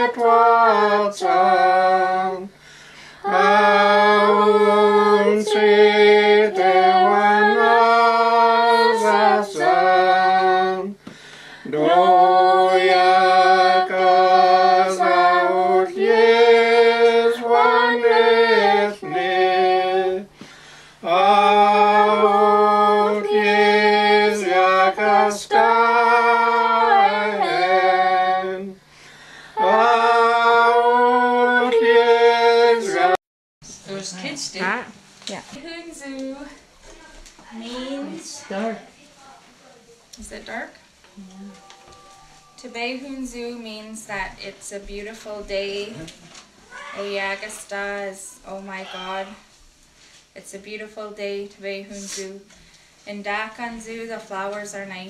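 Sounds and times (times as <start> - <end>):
group singing unaccompanied hymn: 0.0 - 33.2.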